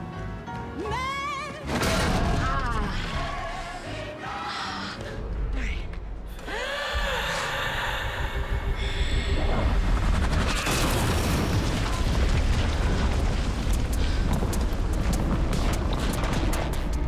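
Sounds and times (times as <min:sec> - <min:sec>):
deep booming rumble: 0:07.0 - 0:17.0.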